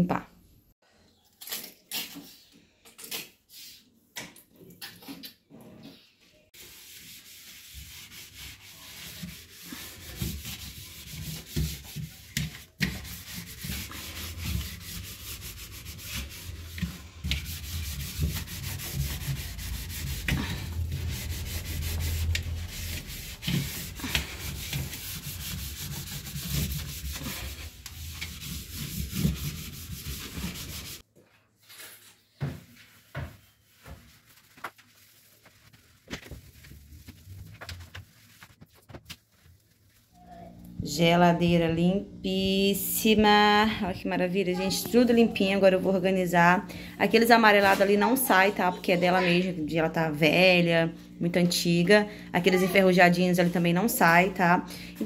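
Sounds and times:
sponge scrubbing plastic: 6.5 - 31.0, 31.6 - 40.3.

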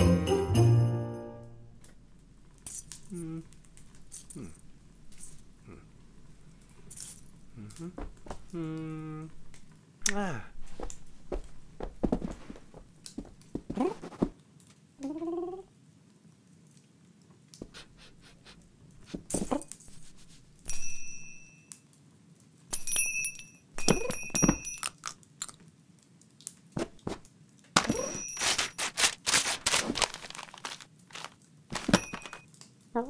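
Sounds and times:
ornaments ringing and clinking: 22.8 - 25.1, 31.8 - 32.4
baubles clattering on floor: 27.8 - 32.5.

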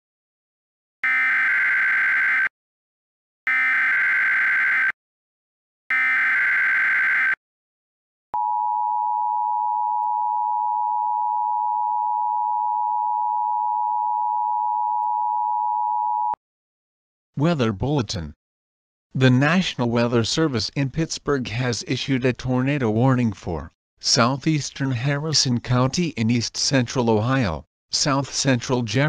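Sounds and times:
screeching digital data tones: 1.0 - 2.5, 3.5 - 5.0, 5.9 - 7.4.

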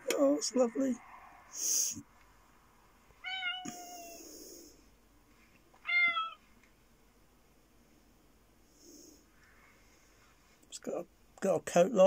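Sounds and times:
cat meowing: 3.2 - 4.4, 5.8 - 6.4.

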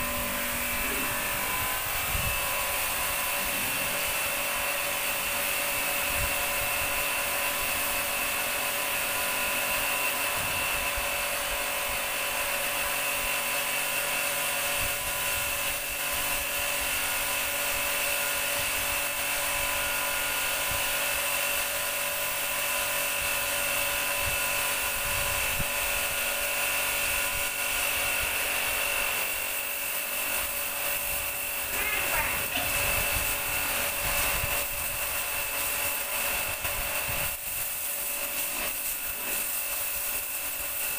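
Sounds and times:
water jet hissing: 0.0 - 11.8, 27.5 - 40.9
pressure washer pump whining: 0.0 - 40.9.

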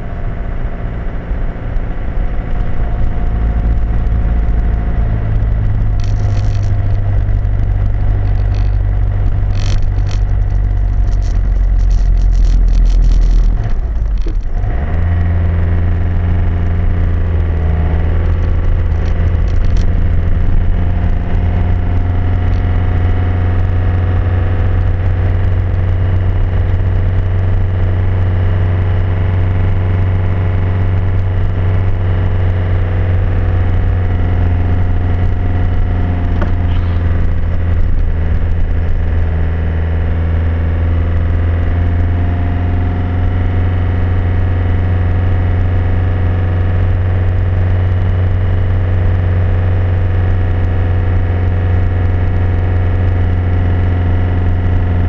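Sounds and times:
vehicle engine and tyre drone: 0.0 - 55.0
rattles and clicks: 2.4 - 27.7, 30.8 - 39.3.

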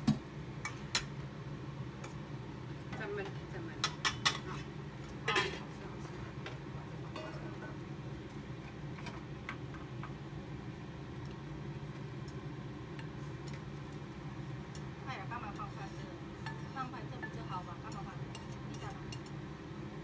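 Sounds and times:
steady low hum: 0.0 - 20.0
cookware clattering: 3.8 - 5.7, 7.1 - 7.7.

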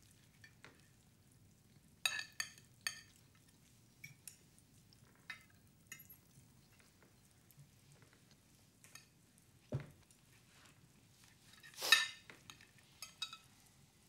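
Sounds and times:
cutlery and tableware clinking: 11.5 - 13.5.

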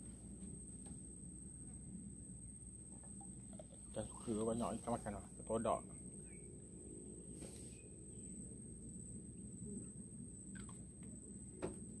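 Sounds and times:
low steady rumble: 0.0 - 12.0
faint chirps: 6.1 - 6.6.

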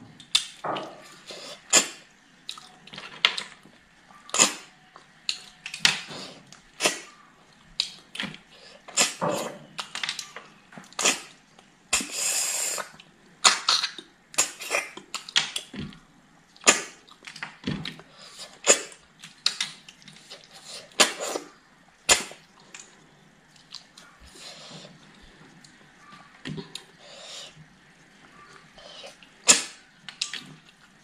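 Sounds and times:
hiss: 12.0 - 12.9.

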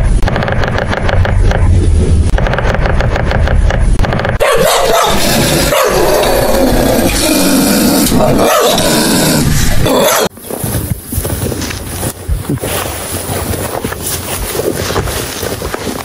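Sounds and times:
animals grazing grass: 10.3 - 16.0.

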